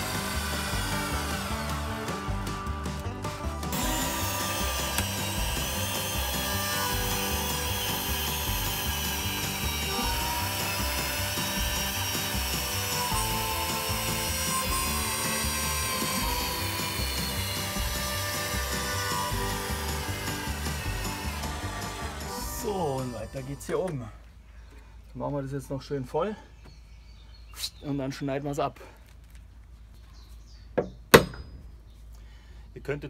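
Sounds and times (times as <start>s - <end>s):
woodworking tool noise: 0.0s - 24.0s.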